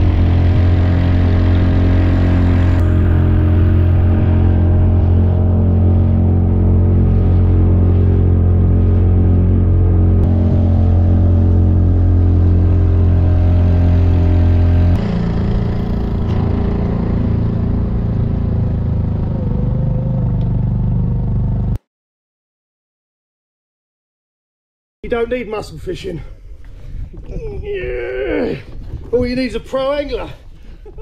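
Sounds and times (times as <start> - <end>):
water rushing past hull: 0.0 - 19.7
outboard motor running: 0.0 - 21.8.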